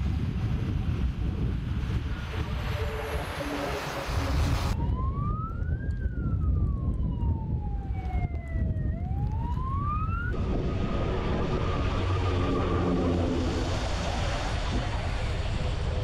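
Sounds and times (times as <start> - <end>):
siren wailing: 2.3 - 15.3
low rumble of heavy vehicles: 9.1 - 16.0.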